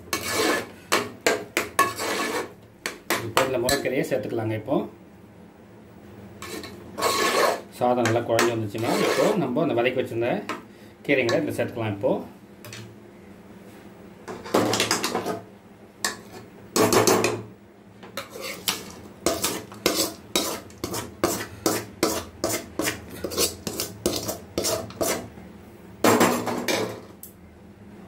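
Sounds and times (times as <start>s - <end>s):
metal spoon scraping a pan: 0.0s - 3.8s, 6.4s - 9.5s, 16.1s - 16.5s, 18.2s - 25.3s.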